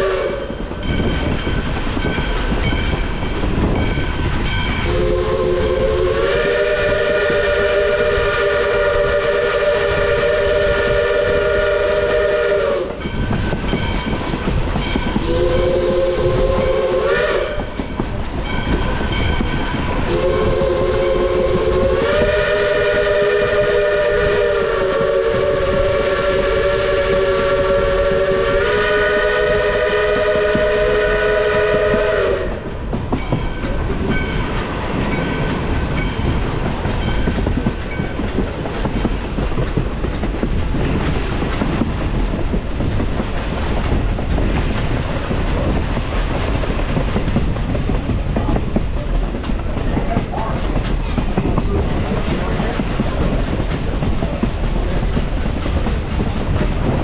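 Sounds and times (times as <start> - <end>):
steam locomotive chime whistle: 0.0 - 3.2, 3.8 - 36.4
train rolling and rail clatter: 0.0 - 57.0.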